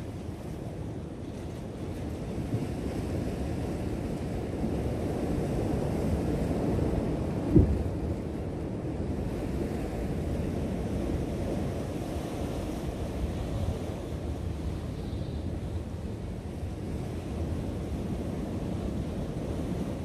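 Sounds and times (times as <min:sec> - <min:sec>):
wind buffeting microphone: 0:00.0 - 0:20.0
low thump: 0:07.5 - 0:07.8.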